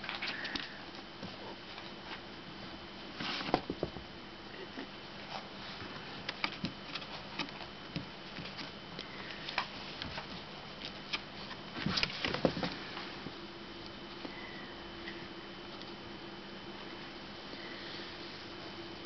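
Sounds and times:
kittens scratching cardboard: 5.2 - 13.3.

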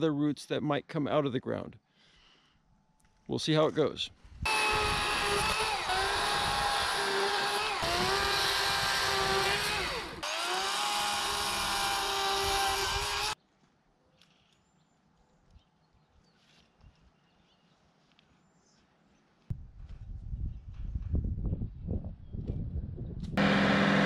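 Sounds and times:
chainsaw cutting: 4.5 - 13.4, 23.4 - 24.0.

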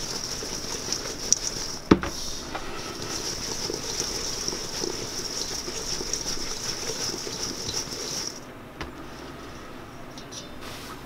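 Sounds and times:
cherries shaken in metal bowl: 0.0 - 8.5.

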